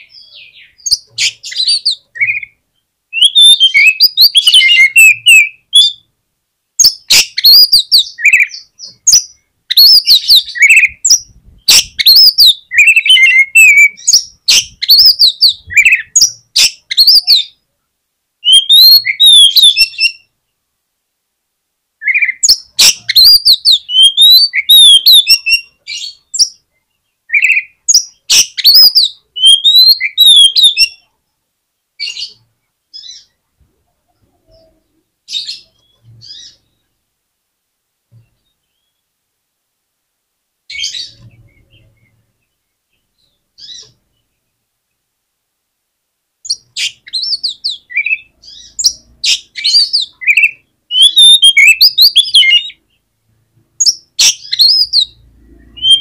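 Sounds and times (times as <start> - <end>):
bird singing whistles and chirps: 0.0 - 6.1, 6.8 - 17.6, 18.4 - 20.3, 22.0 - 26.6, 27.3 - 31.0, 40.7 - 42.2, 46.5 - 52.8, 53.8 - 56.0.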